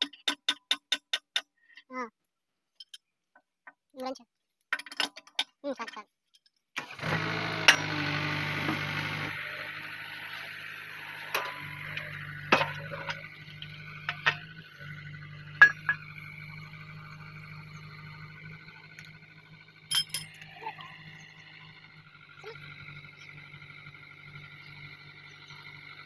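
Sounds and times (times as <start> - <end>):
metal clinks and knocks: 2.7 - 3.1, 4.7 - 6.6, 11.4 - 14.5, 15.5 - 16.2, 19.9 - 20.9.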